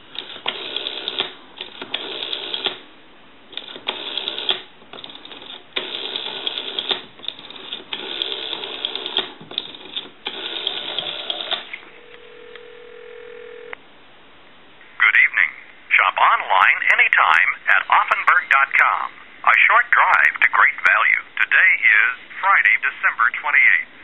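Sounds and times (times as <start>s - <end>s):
rotary dial whirring: 0.1s - 2.8s, 3.5s - 13.8s
telephone ringback tone: 10.5s - 13.8s.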